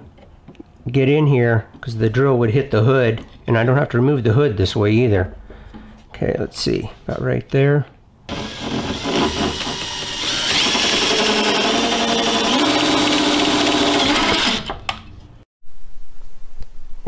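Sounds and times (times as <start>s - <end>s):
cordless drill whining: 8.3s - 14.9s.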